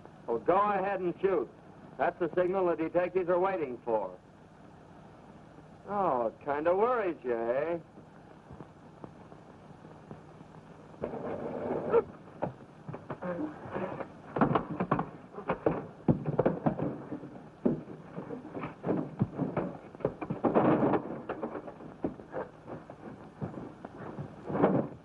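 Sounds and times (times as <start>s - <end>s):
scuffling: 11.0s - 25.0s
bodies striking furniture: 12.4s - 25.0s
thuds and knocks of blows: 14.3s - 25.0s.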